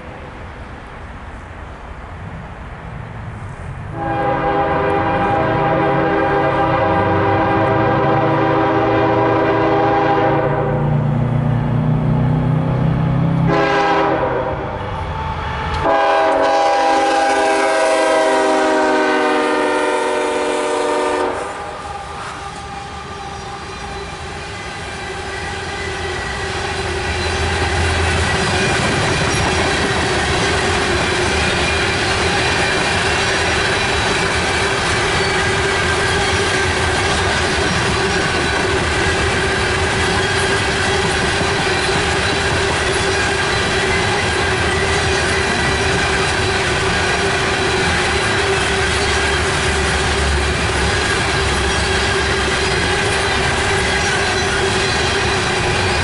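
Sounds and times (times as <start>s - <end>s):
locomotive engines rumbling: 0.0s - 56.0s
locomotive air horn blasts: 3.9s - 10.9s, 13.4s - 24.0s
freight cars rolling past: 21.4s - 56.0s.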